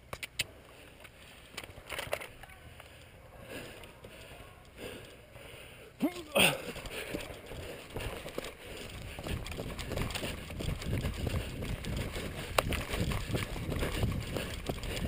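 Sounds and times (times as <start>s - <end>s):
footsteps running on dry leaves: 6.4s - 15.0s.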